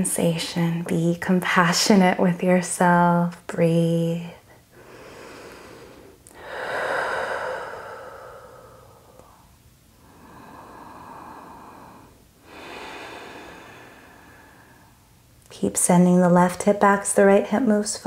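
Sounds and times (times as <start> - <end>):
woman breathing deeply: 4.6 - 15.3.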